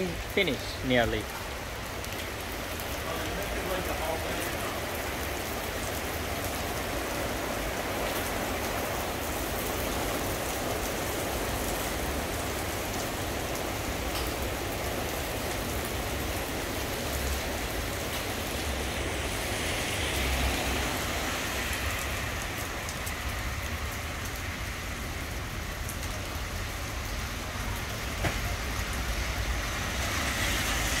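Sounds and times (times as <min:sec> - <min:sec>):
heavy rain on pavement: 0:00.0 - 0:31.0
vehicle swishing past on wet road: 0:17.0 - 0:24.1, 0:28.3 - 0:31.0.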